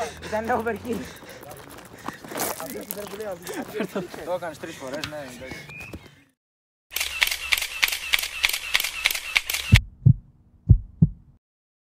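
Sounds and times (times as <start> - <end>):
deep heartbeat thumps: 9.7 - 11.4.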